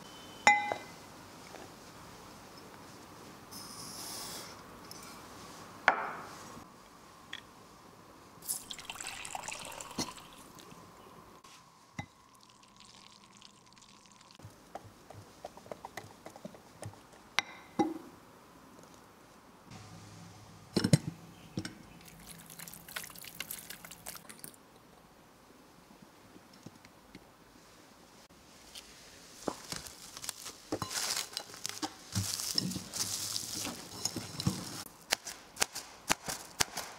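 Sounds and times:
sugar pouring into flour: 8.5s - 10.7s, 12.3s - 14.4s, 22.0s - 24.6s
spoon stirring and clinking glass: 8.7s - 10.5s
batter pouring through sieve: 22.1s - 24.5s.

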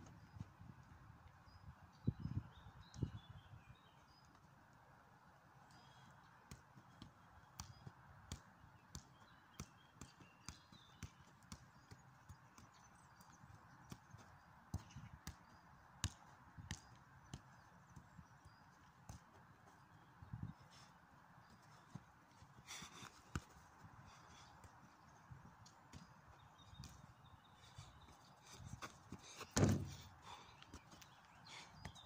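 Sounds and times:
boots tapping a ball: 22.6s - 23.7s, 28.8s - 30.1s
footsteps on artificial turf: 28.1s - 30.1s.

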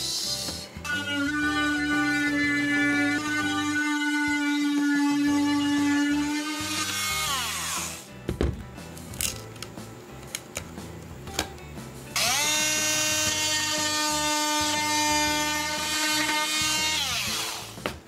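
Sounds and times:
oscillating multi-tool buzzing: 0.0s - 8.1s, 12.2s - 17.8s.

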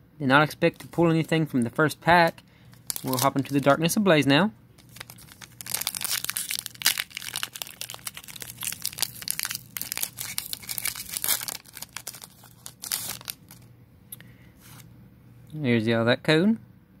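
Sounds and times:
foil wrapper crinkling and tearing: 0.6s - 4.0s, 4.8s - 13.7s.

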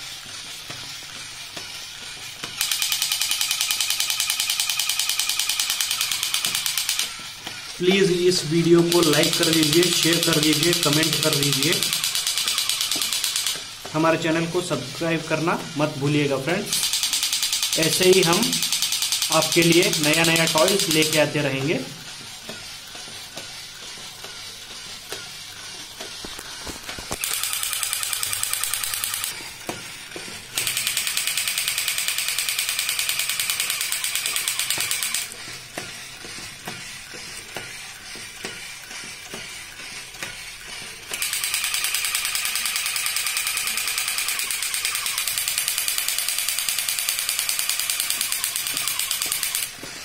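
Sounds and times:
toy motor whirring and clicking: 0.0s - 50.0s
electronic machine-gun sound effect: 2.6s - 21.9s, 26.4s - 29.4s, 30.6s - 35.5s, 39.8s - 49.8s.

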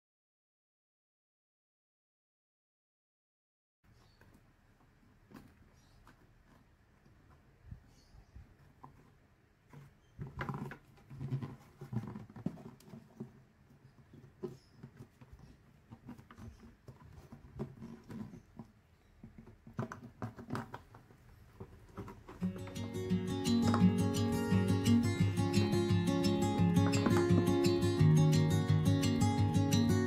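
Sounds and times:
plastic bucket being handled: 8.5s - 28.5s.

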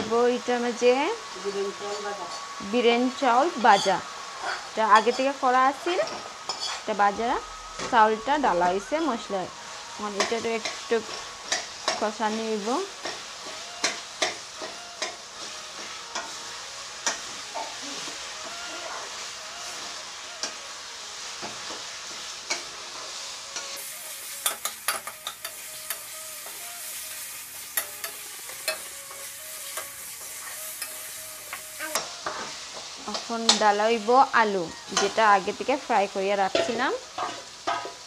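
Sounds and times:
food sizzling in hot oil: 0.0s - 38.0s
spatula stirring and scraping: 6.1s - 6.9s, 21.2s - 33.7s.

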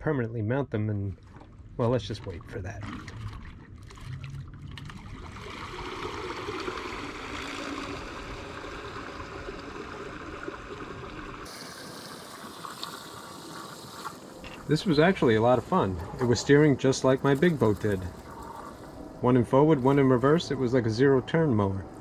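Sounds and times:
water churning from propellers: 1.2s - 15.9s.

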